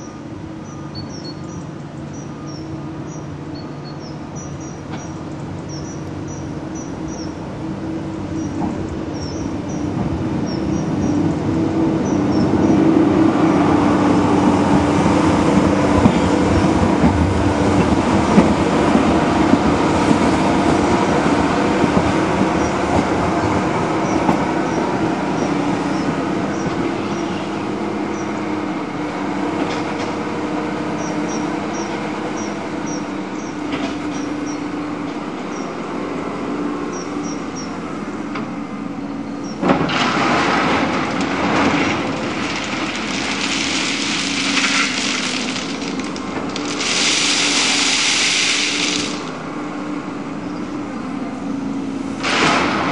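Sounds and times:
diesel engine running: 0.0 - 52.9
wheels running on rails: 40.7 - 49.6.

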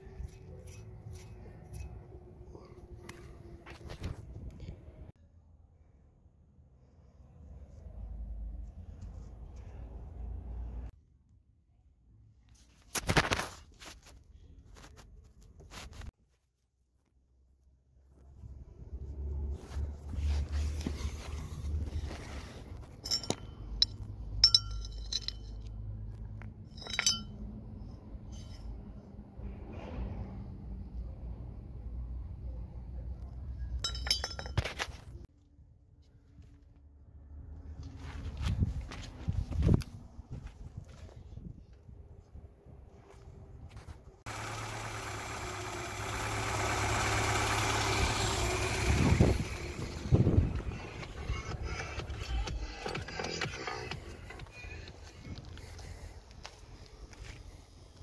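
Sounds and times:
metal tools clinking: 22.8 - 25.7, 26.7 - 27.4, 33.7 - 35.0
car engine idling: 44.3 - 55.9.

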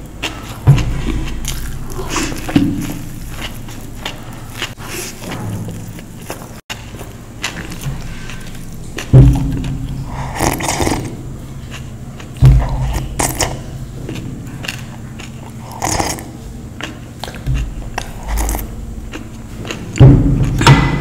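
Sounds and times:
crunchy bites of food: 0.2 - 13.7, 14.5 - 21.0
sharp thumps: 0.6 - 6.3, 7.7 - 11.4, 12.4 - 14.4, 17.4 - 21.0.

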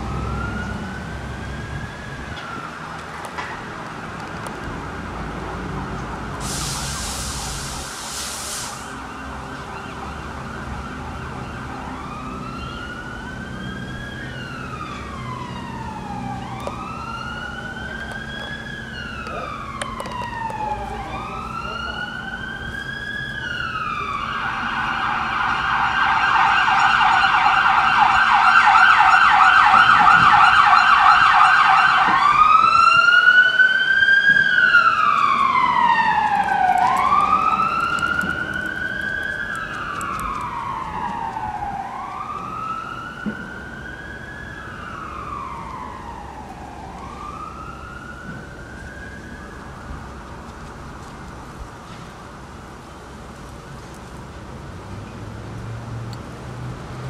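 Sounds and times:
siren wailing: 0.0 - 3.4, 8.9 - 50.3
siren yelping: 8.9 - 50.0.

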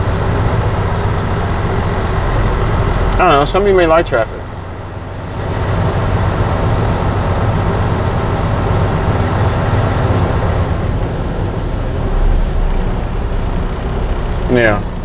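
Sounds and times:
truck diesel engine droning: 0.0 - 15.0.

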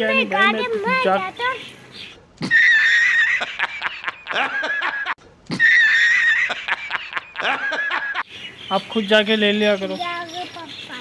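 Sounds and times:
man laughing hard: 2.4 - 8.2.

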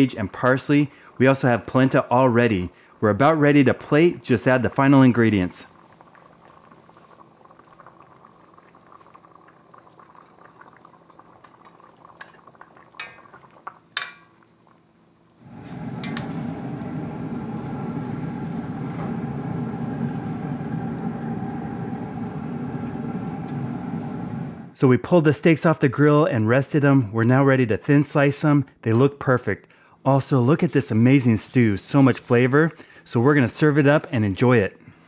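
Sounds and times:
stew simmering in a pot: 4.7 - 24.1.

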